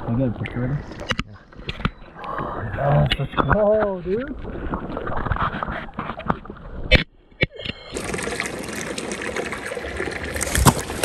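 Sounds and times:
water splashing and trickling: 7.6 - 11.0.

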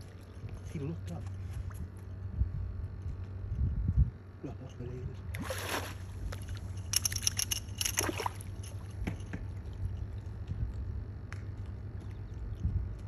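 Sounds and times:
steady low hum: 0.0 - 13.0
dolphin splashing water: 5.4 - 6.4.

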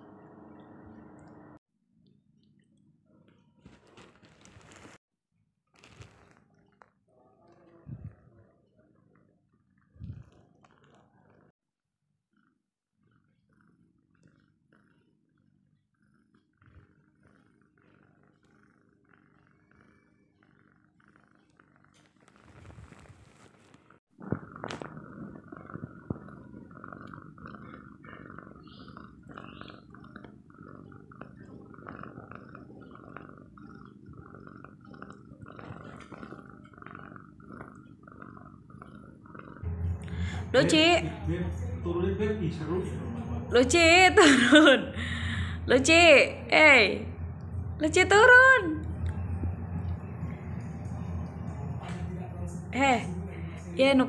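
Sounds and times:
cat purring: 0.0 - 5.0, 5.7 - 54.0
rustling: 3.6 - 5.0, 5.7 - 6.9, 21.9 - 26.8.

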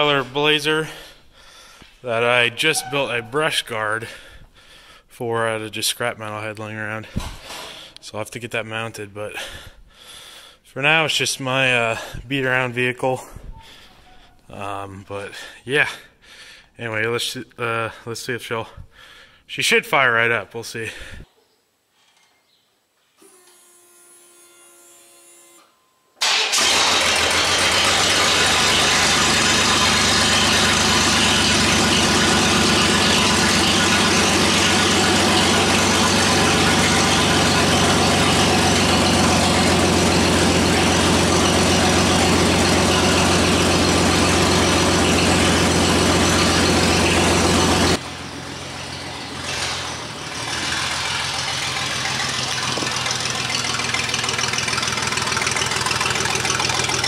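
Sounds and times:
engine starting and idling: 0.0 - 1.1, 2.1 - 4.4, 26.2 - 57.0
faint starter whir: 25.4 - 57.0.

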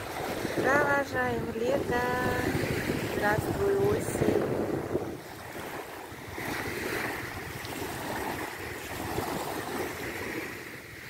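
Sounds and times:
small waves washing onto sand: 0.0 - 11.0
wind buffeting microphone: 0.0 - 11.0.

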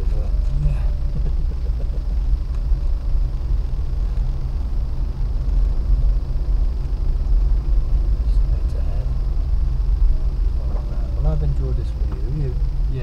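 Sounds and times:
car engine droning: 0.0 - 13.0.

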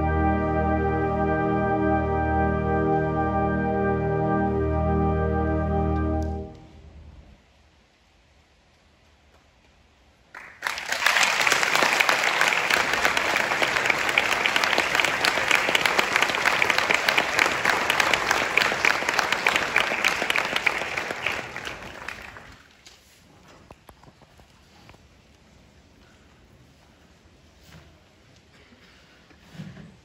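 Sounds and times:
audience applauding: 10.3 - 22.8.

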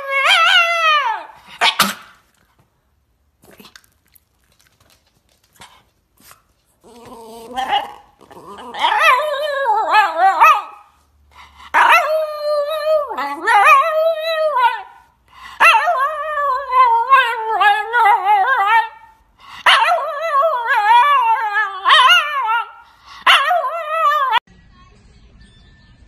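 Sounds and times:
dog howling: 6.9 - 10.8.

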